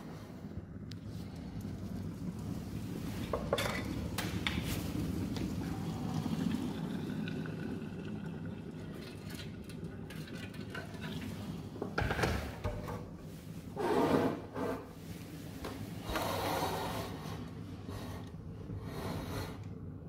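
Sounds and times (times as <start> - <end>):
kettle boiling: 0.0 - 20.0
water pouring into metal can: 4.6 - 11.5.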